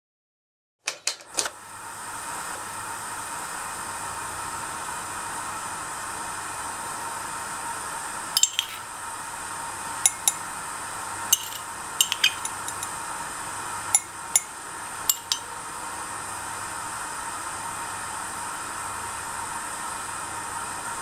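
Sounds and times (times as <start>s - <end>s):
metal spoon clinking against glass: 8.4s - 8.9s, 10.1s - 10.4s, 11.3s - 13.0s, 14.0s - 14.5s, 15.1s - 15.5s.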